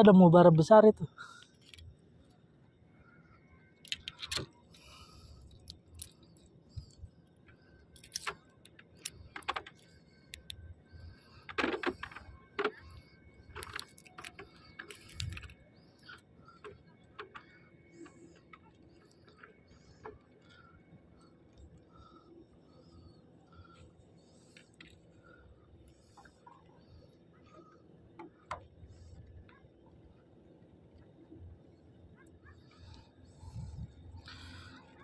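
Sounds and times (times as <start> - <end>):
fishing tackle clicking and jingling: 1.4 - 2.0, 13.5 - 15.6.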